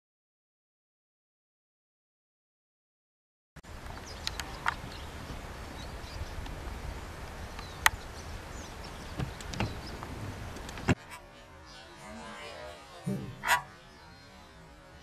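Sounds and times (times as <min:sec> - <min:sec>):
sharp clicks: 0:09.2 - 0:11.0.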